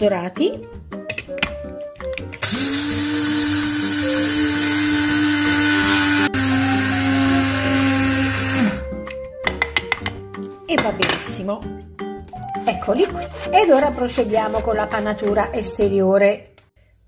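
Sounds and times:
electric grinder motor whine: 2.4s - 8.9s.

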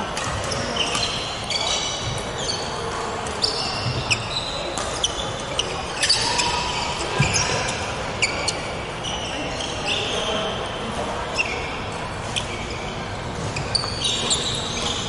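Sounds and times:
shoes squeaking on wooden floor: 12.3s - 15.0s.

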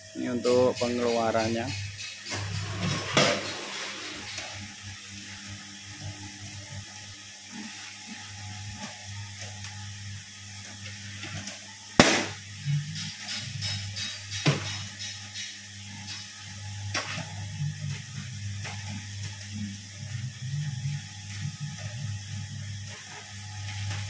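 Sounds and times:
feed mixer humming: 2.2s - 5.5s
sharp knock: 12.0s - 12.4s.

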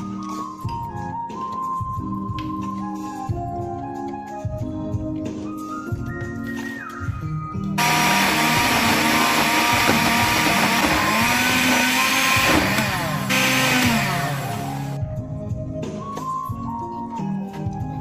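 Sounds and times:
background music: 0.0s - 18.0s
electric blender grinding: 7.8s - 15.0s.

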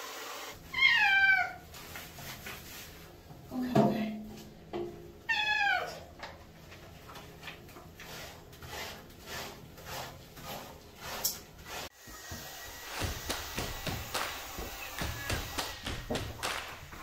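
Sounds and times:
cat meowing: 0.7s - 1.6s, 5.3s - 6.0s.

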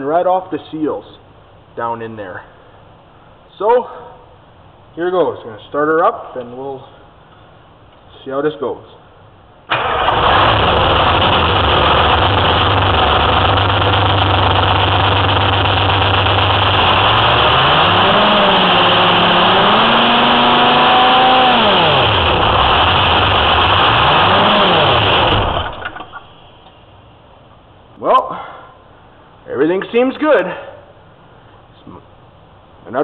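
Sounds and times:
diesel engine idling and revving: 9.7s - 26.3s.

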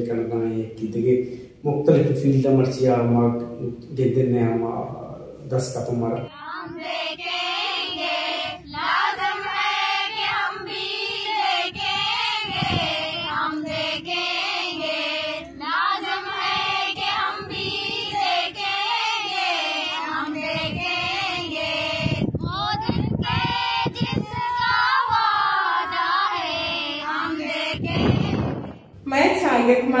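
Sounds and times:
young women singing together: 6.3s - 28.9s.

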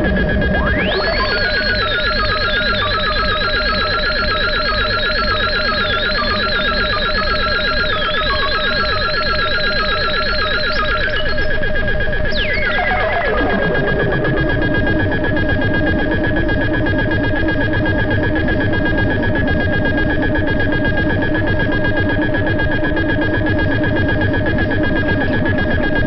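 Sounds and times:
whistle-like tone: 0.0s - 11.6s, 12.3s - 13.9s
low synth drone: 0.0s - 26.0s
pulse of falling synth blips: 0.0s - 26.0s
wavering high synth tone: 0.0s - 26.0s.

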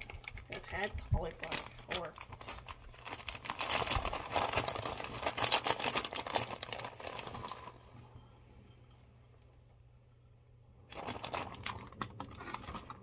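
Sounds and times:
plastic bag crinkling: 0.0s - 8.0s, 10.8s - 13.0s.

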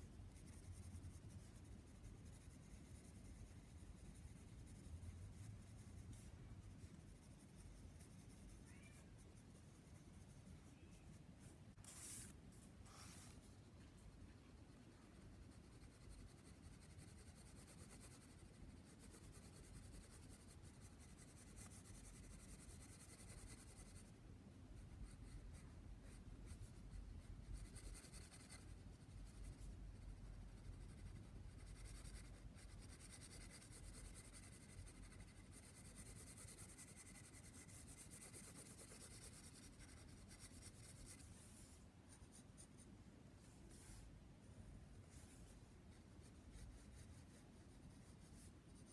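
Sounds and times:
pencil scratching on paper: 0.1s - 8.7s, 9.3s - 24.2s, 24.8s - 42.9s.

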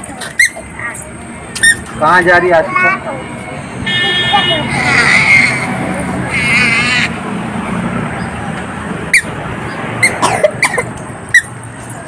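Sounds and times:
roadside traffic noise: 0.0s - 12.0s
short high squeaks: 0.2s - 2.0s
wavering high-pitched tone: 0.4s - 5.1s.

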